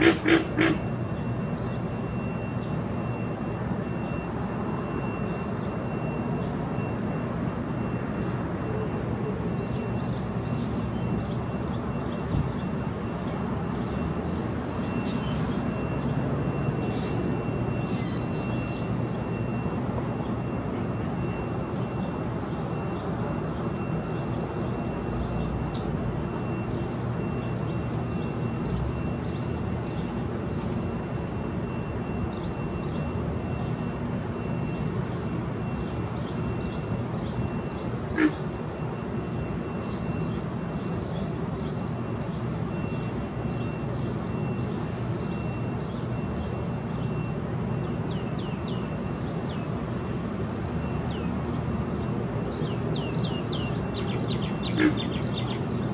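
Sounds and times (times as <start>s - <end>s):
frogs grunting chorus: 0.0s - 0.8s, 38.1s - 38.5s, 54.7s - 55.3s.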